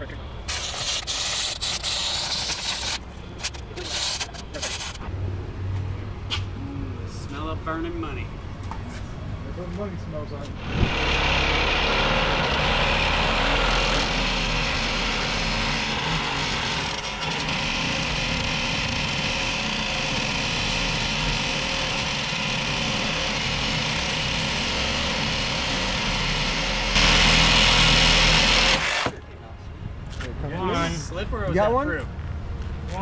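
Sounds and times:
cordless drill boring into steel: 0:10.6 - 0:29.2.

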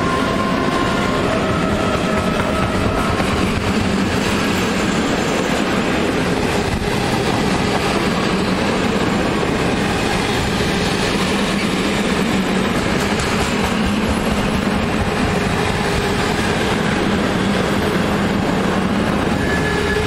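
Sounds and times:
freight train wagons rumbling: 0:00.0 - 0:20.0.

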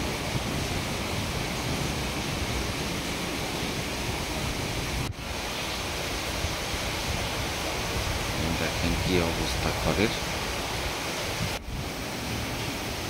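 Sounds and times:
heavy rain pouring: 0:00.0 - 0:13.0.

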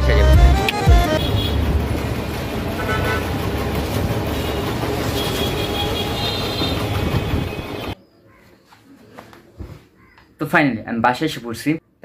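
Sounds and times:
road traffic: 0:00.0 - 0:08.0
busy shop din: 0:00.6 - 0:10.4.

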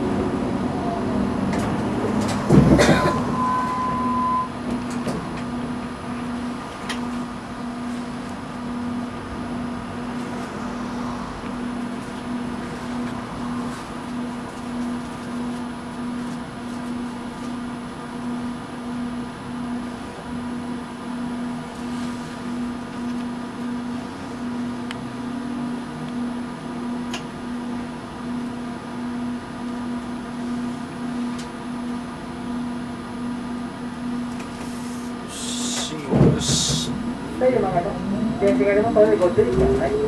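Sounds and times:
tram equipment hum: 0:00.0 - 0:40.0
pulsing low tone: 0:08.6 - 0:14.4.

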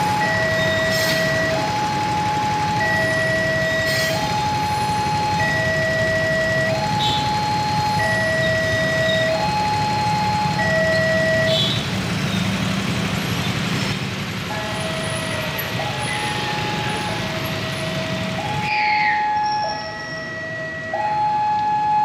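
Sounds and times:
traffic engines humming: 0:00.0 - 0:22.0.

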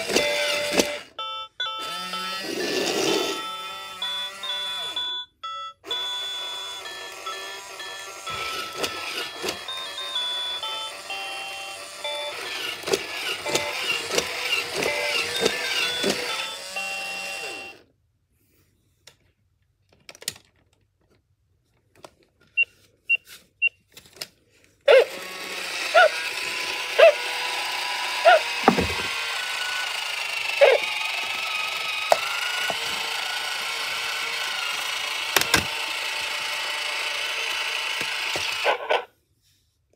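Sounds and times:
toy motors whirring: 0:00.0 - 0:05.0, 0:05.8 - 0:17.8, 0:24.9 - 0:39.1
toy playing beeping tune: 0:00.0 - 0:17.8, 0:25.2 - 0:35.3.

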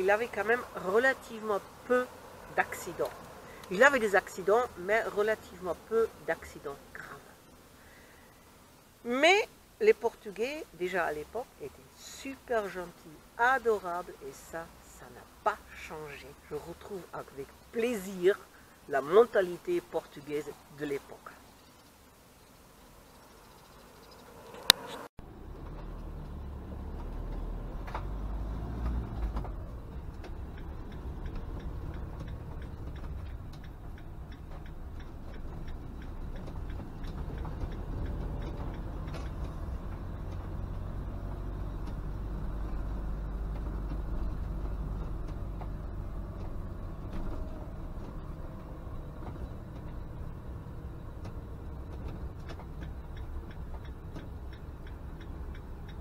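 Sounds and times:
engine and road rumble: 0:00.0 - 0:56.0
cab rattles and clicks: 0:23.5 - 0:56.0.

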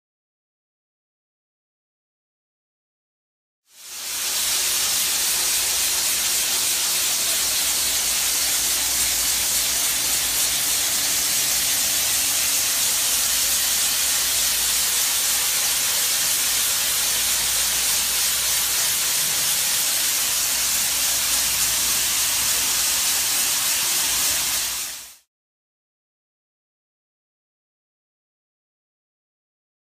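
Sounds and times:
loud hiss of abrasive blasting: 0:03.8 - 0:25.2.

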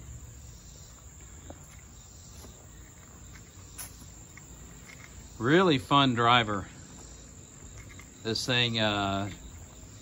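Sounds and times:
faint insect chirring: 0:00.0 - 0:10.0.

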